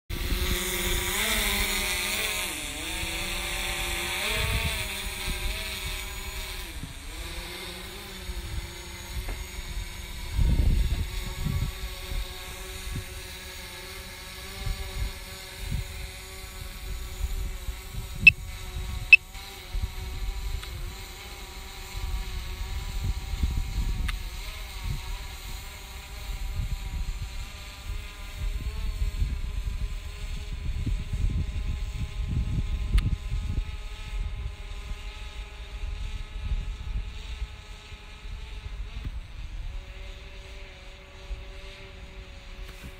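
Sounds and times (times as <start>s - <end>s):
wind rumbling on microphone: 0.1s - 21.1s, 21.8s - 42.9s
drone propellers buzzing: 0.1s - 42.9s.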